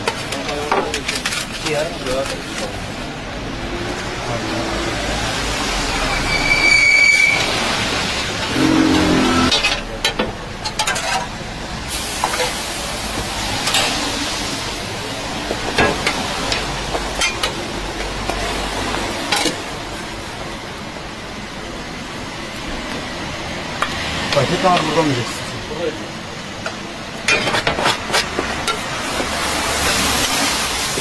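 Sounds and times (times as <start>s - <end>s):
frying sizzle on griddle: 10.6s - 25.4s, 26.4s - 31.0s.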